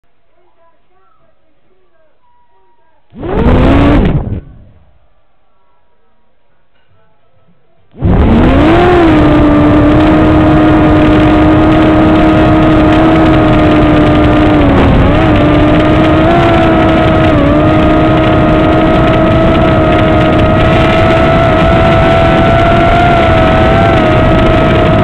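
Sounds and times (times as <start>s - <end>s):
drone propellers whining: 3.1s - 4.9s, 8.0s - 25.0s.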